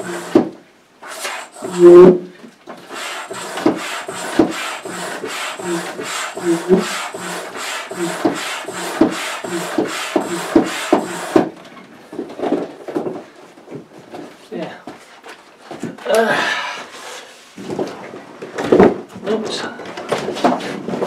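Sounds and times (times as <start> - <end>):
hand pump rushing air: 0.0 - 2.1, 2.9 - 11.5.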